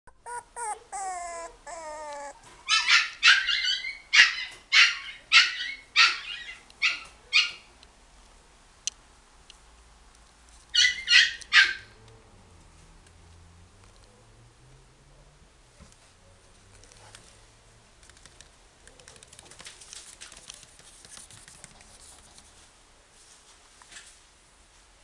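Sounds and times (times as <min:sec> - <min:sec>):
puppy whining: 0:00.1 - 0:07.6
puppy yipping: 0:00.1 - 0:07.7, 0:10.7 - 0:12.0.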